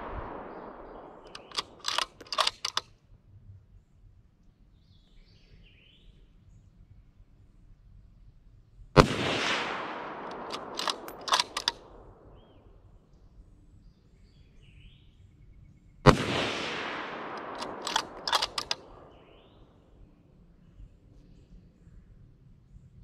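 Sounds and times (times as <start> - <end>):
rifle shots with echo: 0.0 - 2.8, 9.0 - 12.6, 16.1 - 19.8
rifle bolt clicking: 0.3 - 2.9, 10.0 - 12.0, 17.2 - 19.0.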